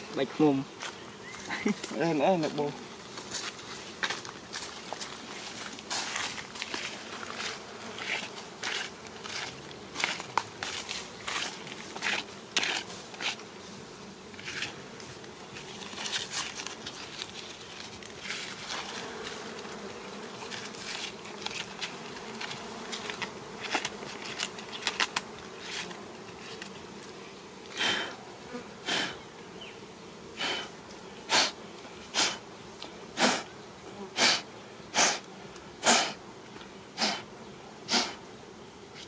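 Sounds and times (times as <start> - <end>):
bees buzzing: 0.0 - 39.0
twig brushing and rustling: 0.8 - 13.4, 14.3 - 26.8.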